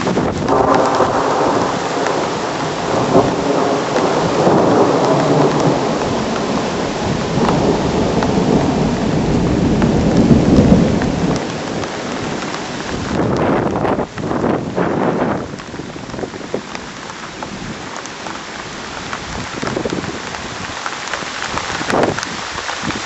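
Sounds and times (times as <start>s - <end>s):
rolling thunder rumble: 0.0s - 16.8s
wind gusting over microphone: 0.0s - 18.0s, 18.6s - 23.0s
heavy rain: 0.0s - 23.0s.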